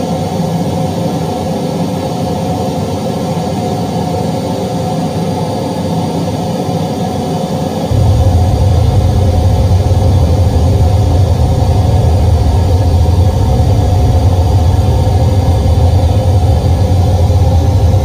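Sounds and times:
heavy low bass: 0:07.9 - 0:18.0
rumbling speaker test noise: 0:07.9 - 0:18.0.

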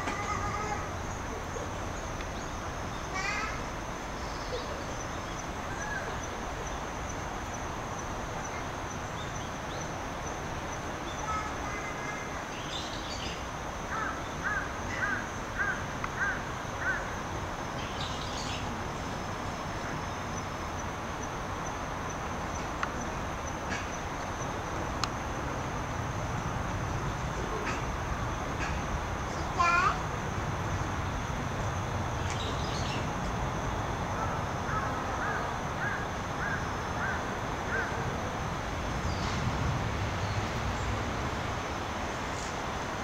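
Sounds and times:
birds calling: 0:00.0 - 0:24.6.

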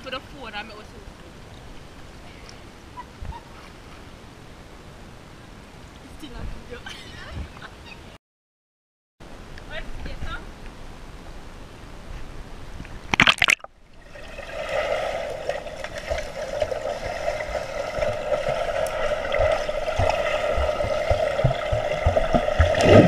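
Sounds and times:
pool splash and gurgle: 0:13.0 - 0:23.0
low thuds from swimmers: 0:15.8 - 0:23.0.

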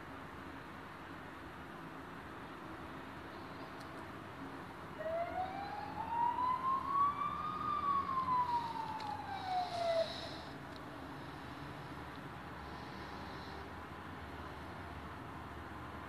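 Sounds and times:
steady background hiss: 0:00.0 - 0:16.0
siren wailing: 0:05.0 - 0:10.4.

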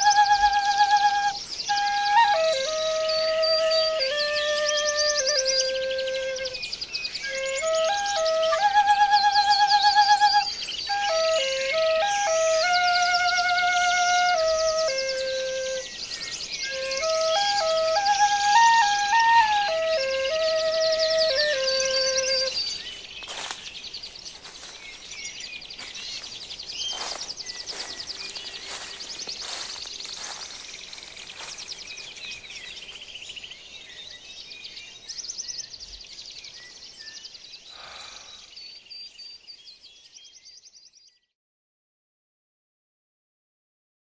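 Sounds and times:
sustained flute notes: 0:00.0 - 0:23.6, 0:26.9 - 0:33.0
birds chirping and trilling: 0:00.0 - 0:41.2.

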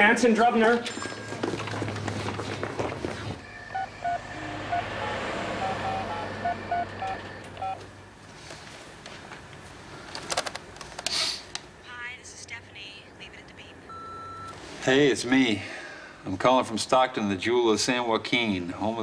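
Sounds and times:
telephone key tones: 0:06.1 - 0:07.8.

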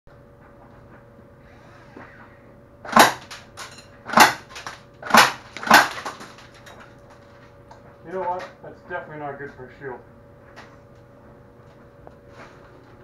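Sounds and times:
airsoft shotgun shots: 0:02.9 - 0:03.3, 0:04.1 - 0:06.0.

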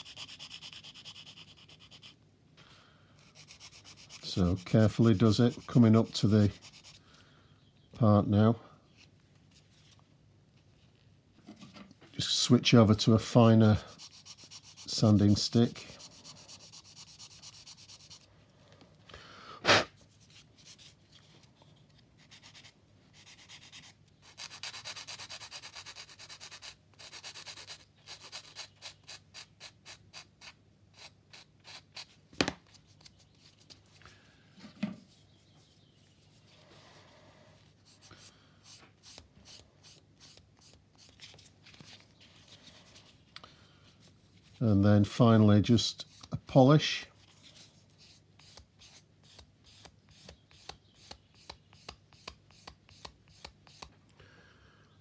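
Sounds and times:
sanding stick rasping on plastic: 0:00.0 - 0:02.2, 0:13.8 - 0:18.2.

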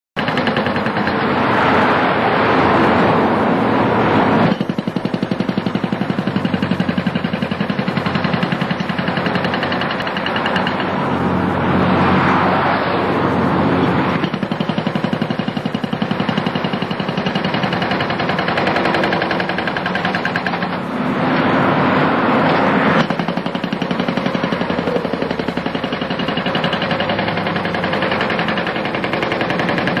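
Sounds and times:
hydraulic breaker hammering pavement: 0:00.2 - 0:02.1, 0:04.4 - 0:11.2, 0:14.1 - 0:21.1, 0:22.4 - 0:30.0.

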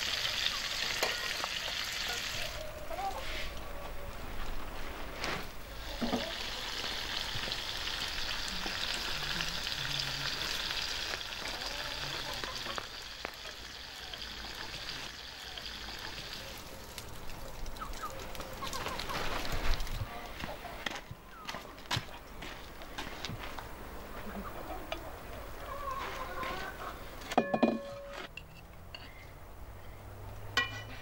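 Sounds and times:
food sizzling in a pan: 0:00.0 - 0:02.6, 0:05.7 - 0:17.4.

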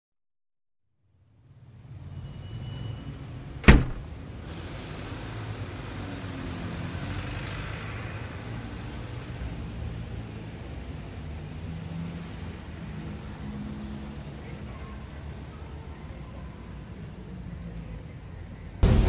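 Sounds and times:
distant traffic rumble: 0:03.5 - 0:09.5
door banging open: 0:03.6 - 0:04.1.

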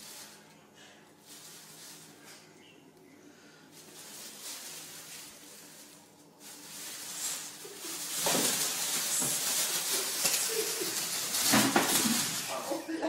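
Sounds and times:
plastic bag crinkling: 0:01.2 - 0:02.5, 0:03.6 - 0:13.0.

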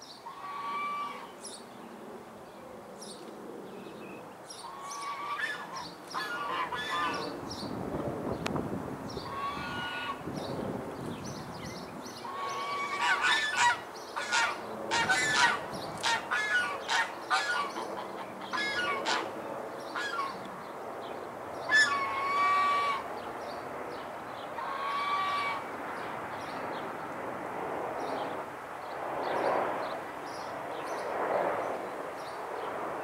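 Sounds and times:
birds calling: 0:03.0 - 0:08.5, 0:09.1 - 0:26.9.

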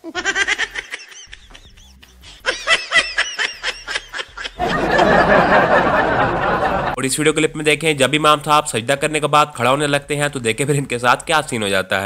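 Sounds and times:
high-pitched giggling laughter: 0:00.0 - 0:06.9.

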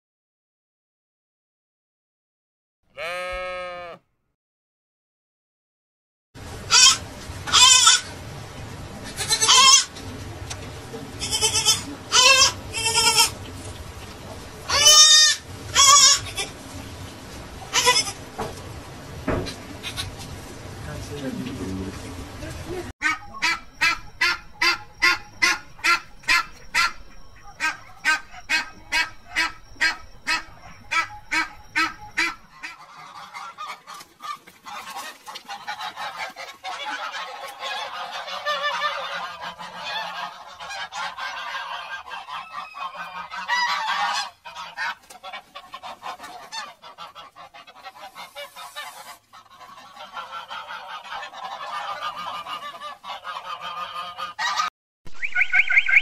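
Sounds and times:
waterfowl honking: 0:06.5 - 0:20.5, 0:23.0 - 0:56.0
flock chorus of calls: 0:23.0 - 0:54.7.

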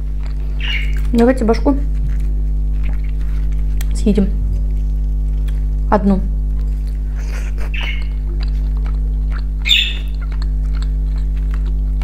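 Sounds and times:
steady low hum: 0:00.0 - 0:12.0
bird chirping: 0:00.6 - 0:01.0, 0:07.7 - 0:08.2, 0:09.6 - 0:10.2
food being pulled apart and chewed: 0:01.9 - 0:05.8, 0:07.8 - 0:12.0.

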